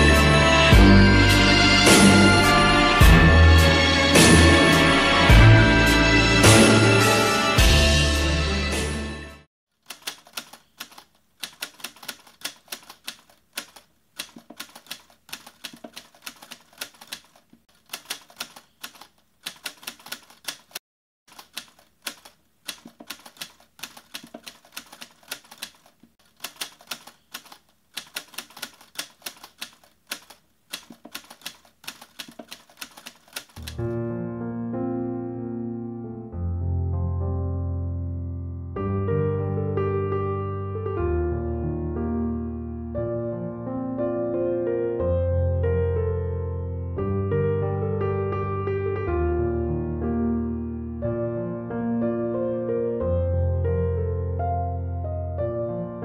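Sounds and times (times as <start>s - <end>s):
typewriter key clacks: 9.9s - 33.9s.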